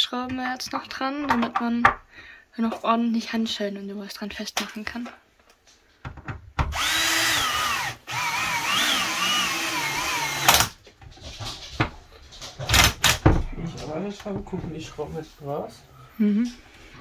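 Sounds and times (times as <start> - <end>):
cordless drill driving screws: 6.7 - 10.7.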